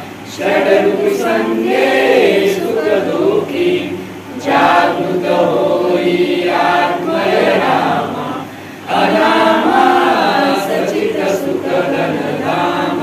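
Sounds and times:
group singing devotional song: 0.0s - 13.0s.

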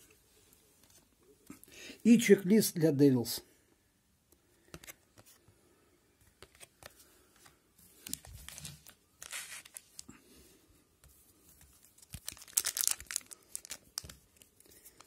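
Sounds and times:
wrapper crinkling and tearing: 8.0s - 10.1s, 11.7s - 15.0s.

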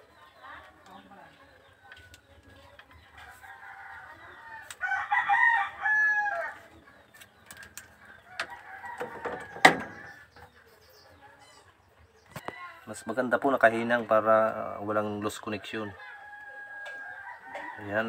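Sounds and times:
rooster crowing: 3.4s - 6.7s, 8.3s - 10.3s, 15.9s - 18.0s.

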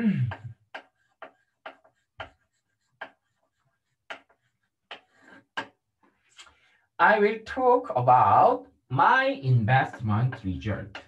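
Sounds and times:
short irregular clicks and taps: 0.2s - 6.6s, 9.9s - 11.0s.

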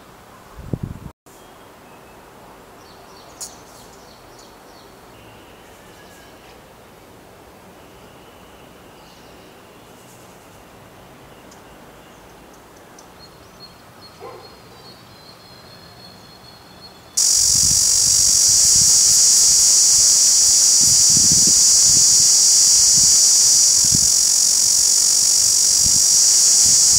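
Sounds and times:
cicada buzzing: 17.2s - 26.9s.

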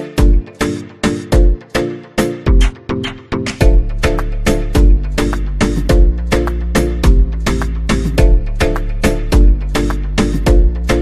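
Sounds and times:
quick percussive hits: 2.5s - 3.8s.

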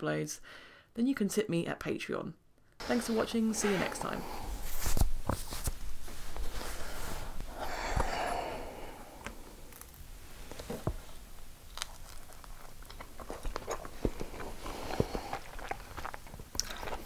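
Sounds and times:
soft breathy noise: 2.8s - 5.1s, 6.0s - 10.6s, 13.9s - 15.9s
pizza crust crackling: 7.7s - 17.0s
chewing: 11.6s - 17.0s.

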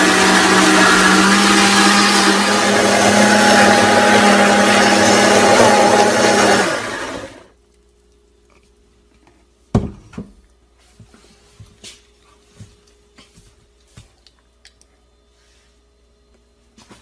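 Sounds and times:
blender motor running: 0.0s - 7.5s.

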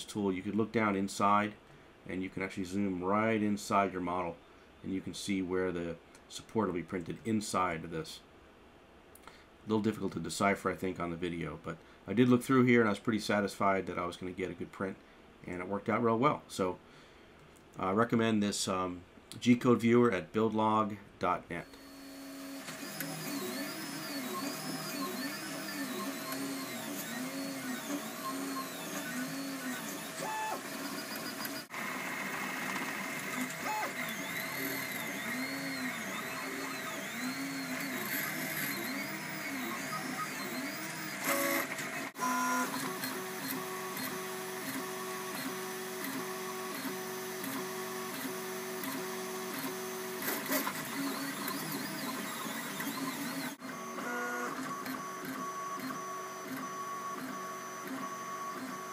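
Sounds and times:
steady printer hum: 21.6s - 58.9s
stepper motors whining: 21.7s - 58.8s.

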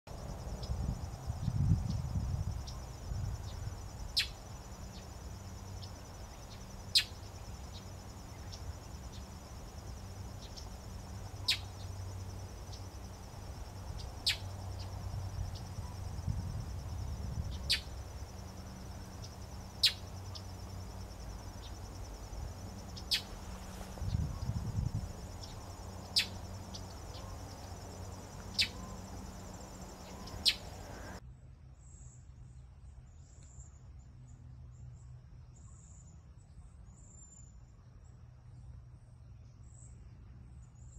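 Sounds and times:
high insect trill: 0.1s - 31.2s.

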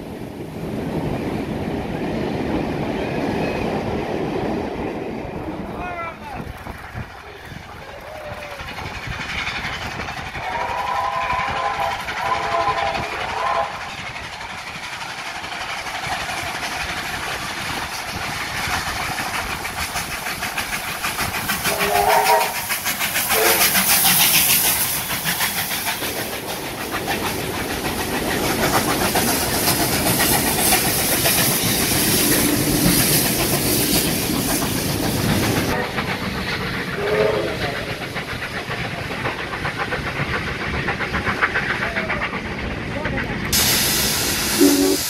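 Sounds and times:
hissing steam: 4.9s - 45.0s
steam locomotive exhaust chuffs: 6.3s - 45.0s
steam whistle: 10.4s - 13.8s, 21.7s - 22.7s, 23.3s - 23.9s, 37.0s - 37.8s, 43.9s - 45.0s.

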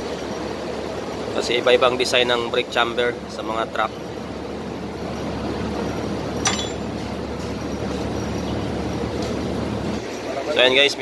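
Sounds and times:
sharp metallic clink: 6.4s - 7.0s.

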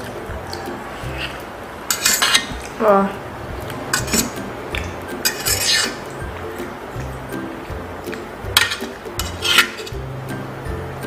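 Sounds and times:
fork scraping metal tray: 1.0s - 2.7s, 3.9s - 6.2s, 8.5s - 10.0s.

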